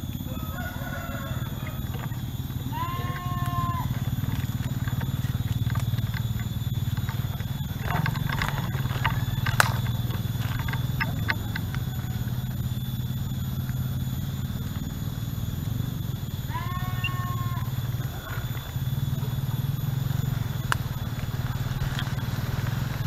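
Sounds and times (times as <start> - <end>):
steady low hum: 0.0 - 23.0
leaves and twigs snapping underfoot: 0.6 - 11.9.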